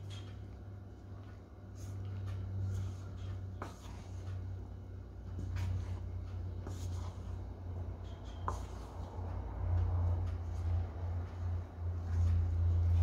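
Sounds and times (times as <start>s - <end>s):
spatula stirring batter in bowl: 0.0s - 9.2s
steady low hum: 0.0s - 13.0s.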